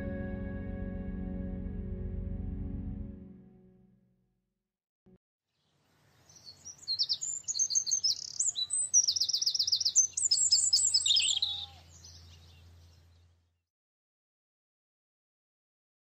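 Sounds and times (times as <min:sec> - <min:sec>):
songbirds singing: 0:05.5 - 0:13.6.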